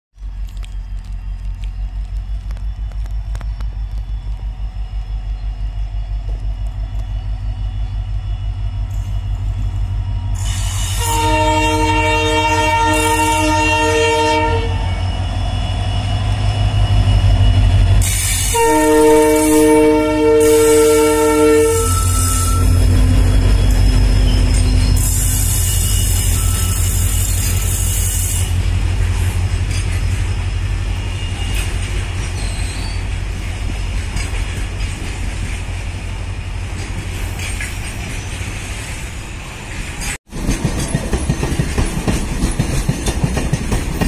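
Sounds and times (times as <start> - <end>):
diesel locomotive engine throbbing: 0.2 - 37.8
train air horn blasts: 10.3 - 15.9, 18.0 - 22.9.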